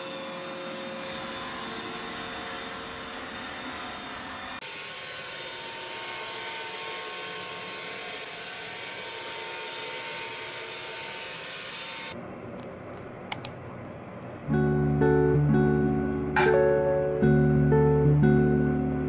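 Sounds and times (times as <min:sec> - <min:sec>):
sharp clicks: 0:13.3 - 0:13.6
acoustic guitar music: 0:14.5 - 0:19.0.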